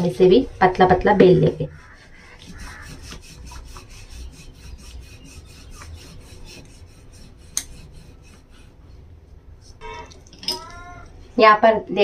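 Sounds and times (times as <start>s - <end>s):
rolling pin rubbing on dough: 1.0s - 8.9s.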